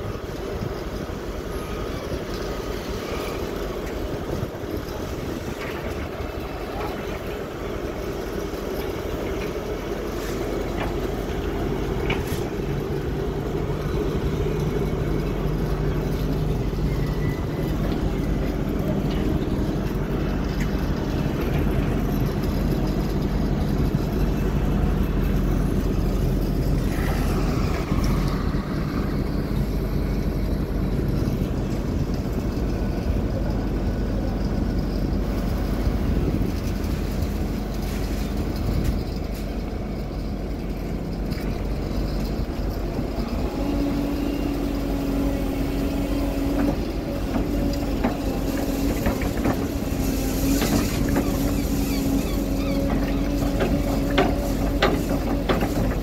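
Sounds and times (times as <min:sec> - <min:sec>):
machinery engine running: 0:00.0 - 0:56.0.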